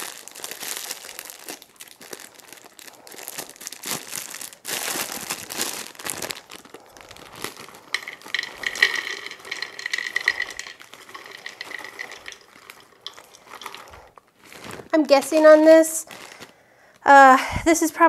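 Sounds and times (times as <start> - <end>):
plastic bag crinkling: 0.0 - 16.6
nut pieces rattling into bowl: 7.2 - 14.2.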